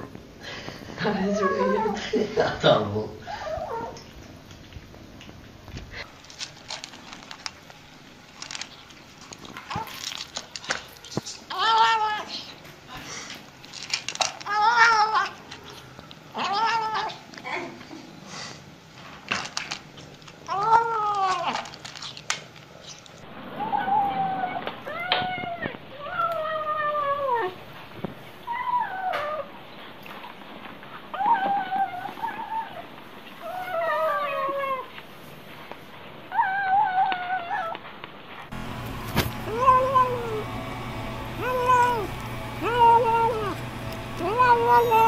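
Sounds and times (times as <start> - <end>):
cat meowing: 23.6 - 27.6, 39.5 - 40.4, 41.4 - 43.6, 44.2 - 45.0
kitten meowing: 41.4 - 43.6, 44.2 - 45.0.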